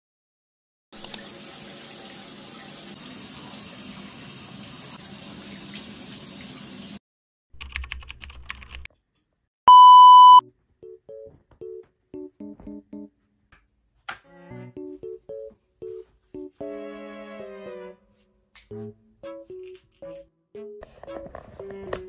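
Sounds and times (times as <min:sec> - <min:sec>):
loud electronic beep: 0:09.7 - 0:10.4.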